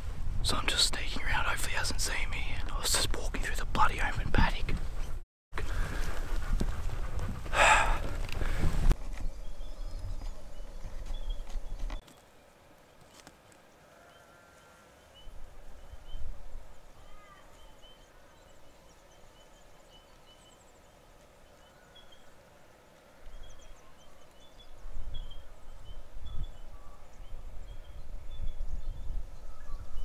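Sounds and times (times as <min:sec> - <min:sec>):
wind rumble on microphone: 0:00.0 - 0:12.0, 0:24.6 - 0:30.0
faint bird chirps: 0:13.8 - 0:22.3, 0:23.1 - 0:30.0.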